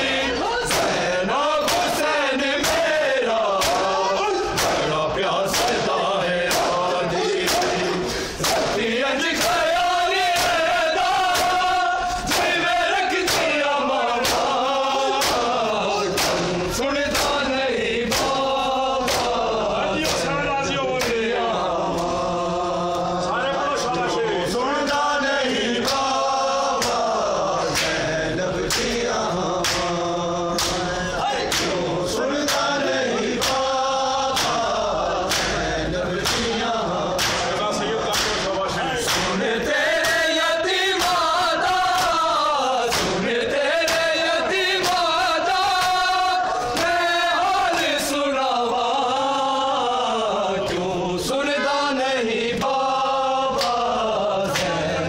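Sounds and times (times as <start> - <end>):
men chanting in unison: 0.0 - 55.0
hands slapping chests: 0.7 - 9.7, 10.3 - 13.6, 14.2 - 17.4, 18.1 - 19.4, 26.8 - 27.1, 27.7 - 28.0, 28.7 - 29.0, 29.6 - 30.0, 30.6 - 31.8, 32.4 - 32.8, 33.4 - 33.7, 34.3 - 35.6, 36.2 - 40.3, 40.9 - 42.2, 42.8 - 43.2, 43.8 - 44.2, 44.8 - 46.1, 53.6 - 53.8, 54.4 - 54.8.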